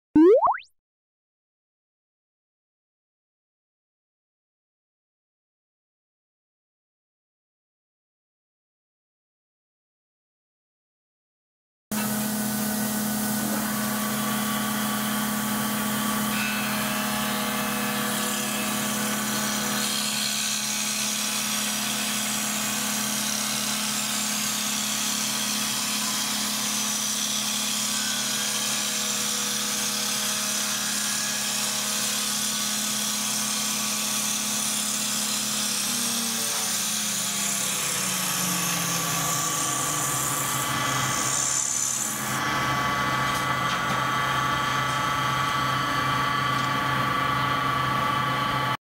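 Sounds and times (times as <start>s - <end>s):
blade shaving wood: 17.4s - 42.4s.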